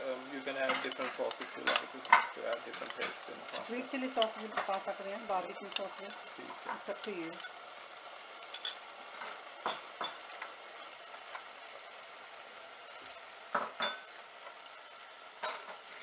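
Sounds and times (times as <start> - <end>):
sauce sizzling in a saucepan: 0.0 - 16.0
spoon knocking and scraping pan: 0.4 - 7.6, 8.4 - 11.5, 13.4 - 14.6, 15.4 - 15.9.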